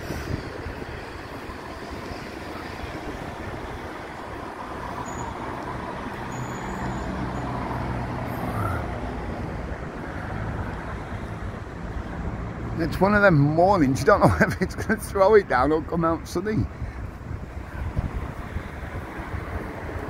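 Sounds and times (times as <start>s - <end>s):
vehicle engine drone passing: 0.0s - 14.1s
traffic noise: 0.0s - 20.0s.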